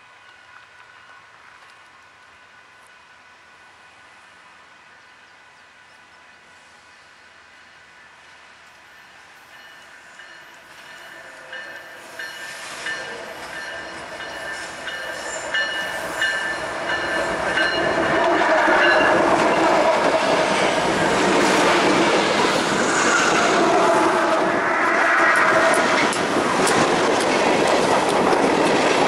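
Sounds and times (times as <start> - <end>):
diesel locomotives passing: 0.0 - 29.0
crossing bell ringing: 9.4 - 19.8.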